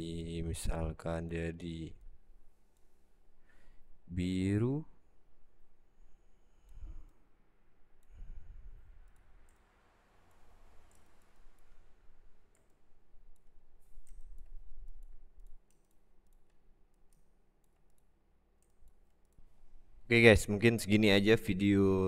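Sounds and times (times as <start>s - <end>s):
computer mouse clicks: 6.6s - 7.3s, 7.9s - 19.7s.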